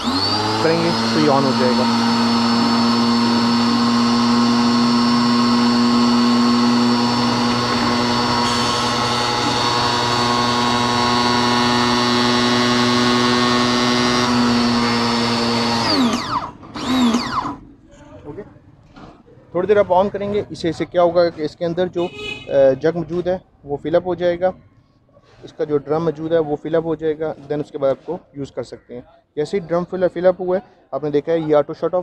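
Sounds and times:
pressure washer motor humming: 0:00.0 - 0:17.6.

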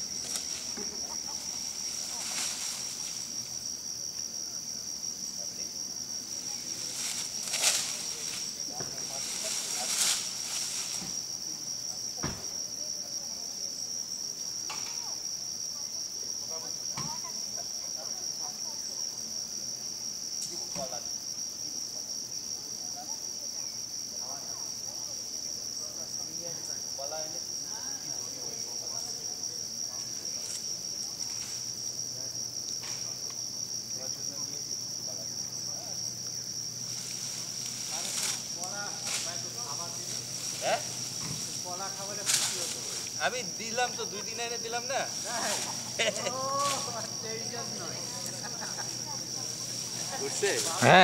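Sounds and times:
insects trilling: 0:00.0 - 0:51.0
dull thump: 0:12.2 - 0:12.5, 0:41.1 - 0:41.6.

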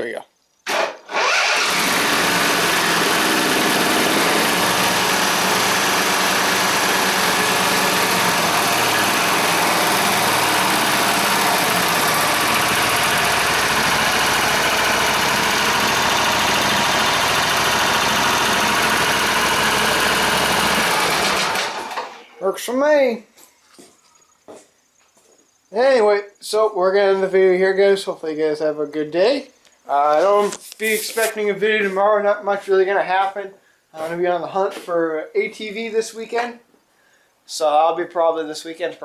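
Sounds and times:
riding mower engine running: 0:00.7 - 0:22.4.

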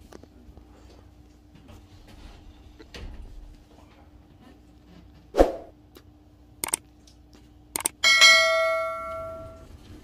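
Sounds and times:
bright bell chime: 0:08.0 - 0:09.7.

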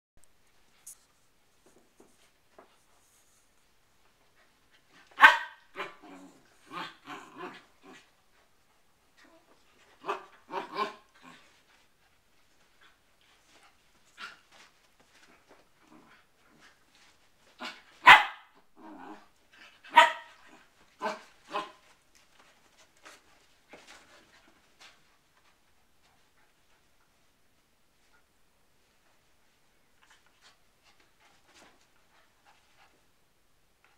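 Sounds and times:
dog barking: 0:05.2 - 0:05.9, 0:18.0 - 0:18.5, 0:19.9 - 0:20.3.

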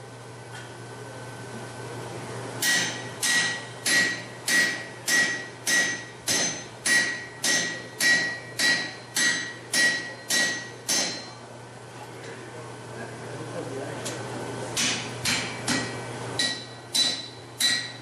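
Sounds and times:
hammer striking steel chisel: 0:02.6 - 0:11.4, 0:14.8 - 0:18.0.

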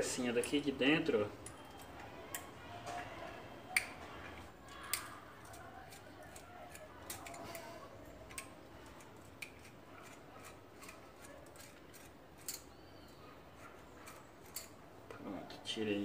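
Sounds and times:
screwdriver clicking and scraping: 0:04.7 - 0:12.8, 0:14.0 - 0:14.8.

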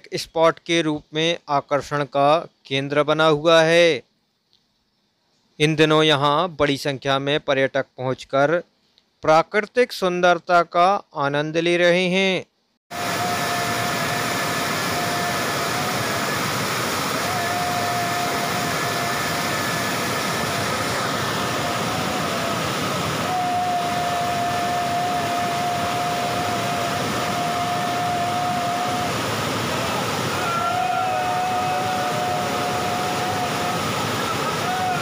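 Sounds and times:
long level tones: 0:12.9 - 0:35.0
waterfall rushing over rocks: 0:12.9 - 0:35.0.

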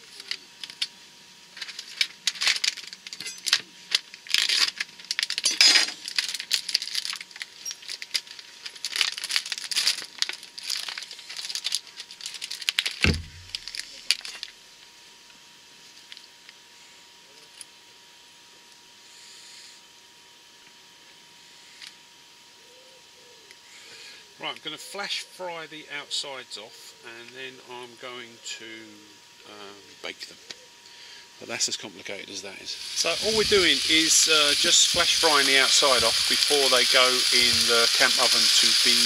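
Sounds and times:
plastic packaging crinkling: 0:01.6 - 0:14.5, 0:33.0 - 0:39.0
low thump: 0:13.0 - 0:13.6.

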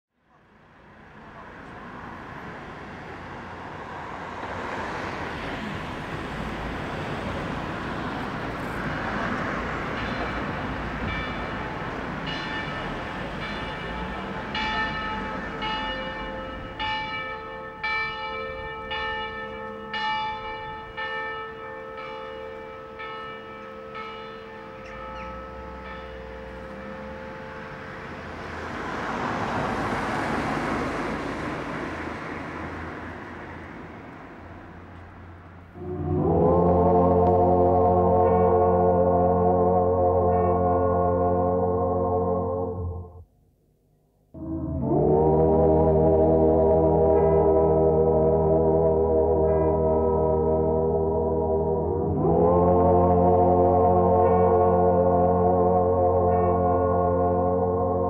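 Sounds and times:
traffic noise: 0:00.1 - 0:58.0
church bells ringing: 0:01.1 - 0:43.3, 0:44.4 - 0:58.0.

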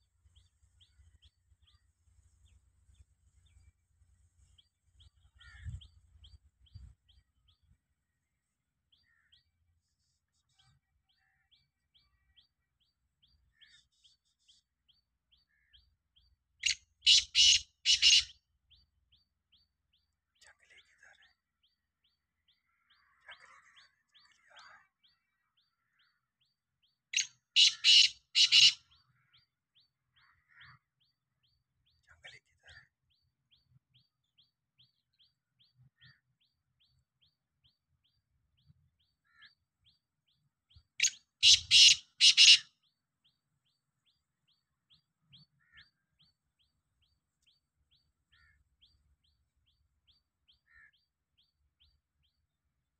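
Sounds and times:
francolin calling: 0:16.6 - 0:18.4, 0:27.2 - 0:28.9, 0:41.0 - 0:42.7.

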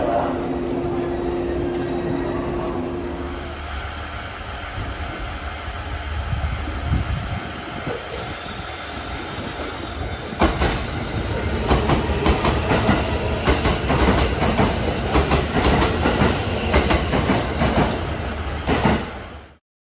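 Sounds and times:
low train rumble: 0:00.0 - 0:19.6
train wheels clattering over rail joints: 0:11.6 - 0:18.0.

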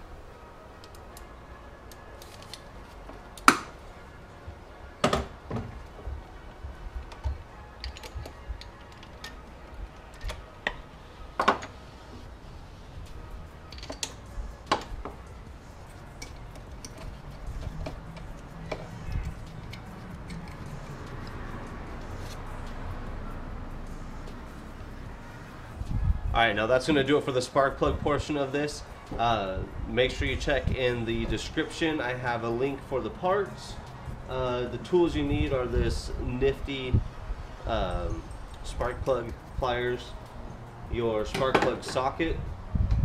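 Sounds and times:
hand tools clicking: 0:16.1 - 0:21.4.

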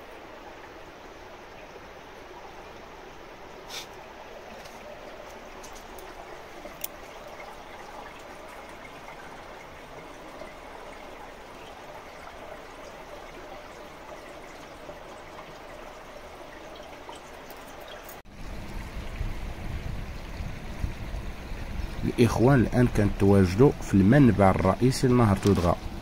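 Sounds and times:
spring water trickling into pool: 0:00.0 - 0:26.0.

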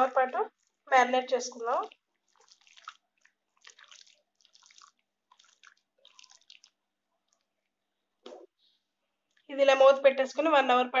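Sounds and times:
wet squelches of kneading: 0:00.0 - 0:08.5.

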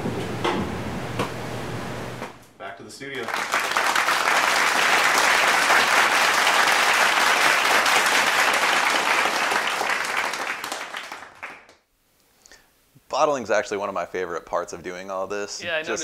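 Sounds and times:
crowd applause: 0:03.1 - 0:11.7.

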